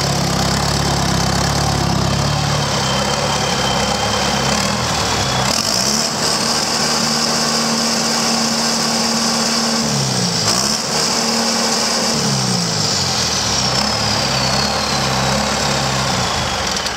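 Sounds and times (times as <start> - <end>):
diesel engine revving: 0.0 - 16.9
turbo whine: 0.0 - 16.9.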